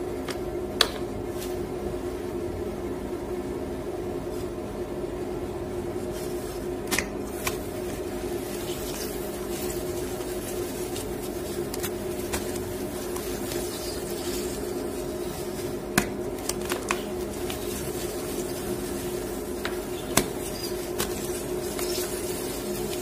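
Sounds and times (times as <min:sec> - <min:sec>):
washing machine humming: 0:00.0 - 0:23.0
chalk crunching and snapping: 0:06.9 - 0:23.0.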